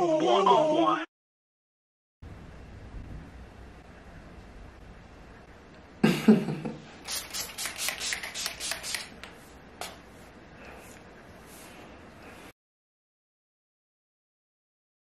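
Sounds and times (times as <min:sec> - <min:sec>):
spray bottle spritzing: 0:07.0 - 0:09.3.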